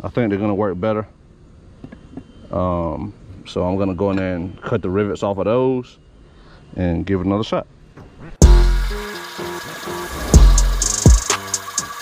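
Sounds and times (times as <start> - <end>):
instrumental beat with bass and synth: 8.4 - 9.3, 10.3 - 12.0.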